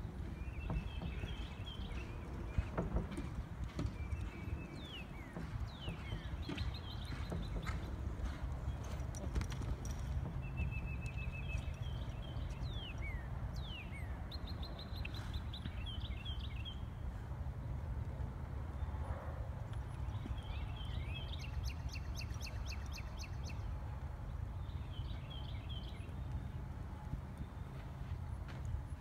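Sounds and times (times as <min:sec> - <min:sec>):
horse hooves clip-clopping: 0:00.0 - 0:13.7, 0:19.5 - 0:29.0.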